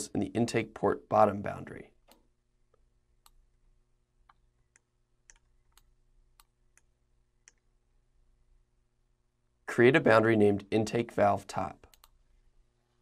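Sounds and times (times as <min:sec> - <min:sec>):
faint steady hum: 0:00.0 - 0:13.0
computer mouse clicks: 0:04.2 - 0:07.7, 0:11.8 - 0:12.2.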